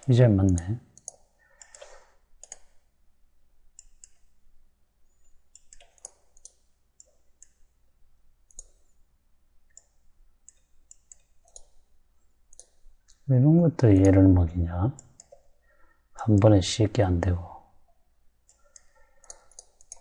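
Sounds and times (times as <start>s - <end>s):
computer mouse clicking: 0.0s - 2.9s, 3.7s - 4.4s, 5.1s - 7.7s, 8.4s - 9.0s, 9.6s - 13.3s, 15.0s - 15.6s, 17.9s - 20.0s.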